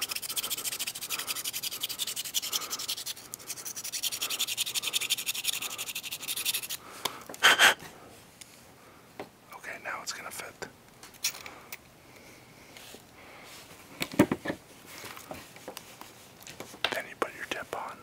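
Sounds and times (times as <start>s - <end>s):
needle file rasping plastic: 0.0s - 6.8s.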